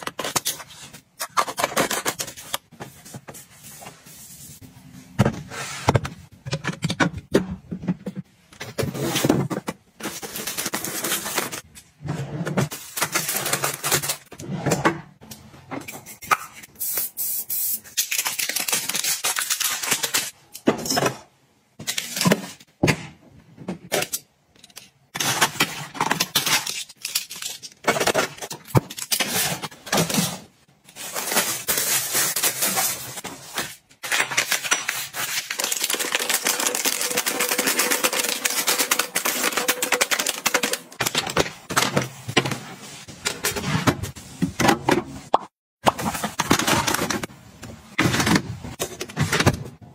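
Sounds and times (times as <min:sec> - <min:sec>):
packaging crinkling and rustling: 0:30.9 - 0:41.3.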